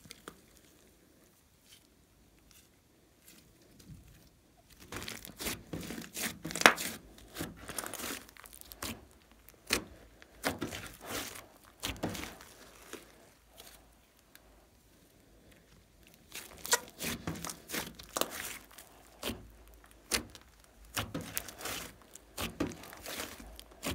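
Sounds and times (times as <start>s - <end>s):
slime crackling and popping: 4.7s - 14.5s, 16.0s - 23.9s.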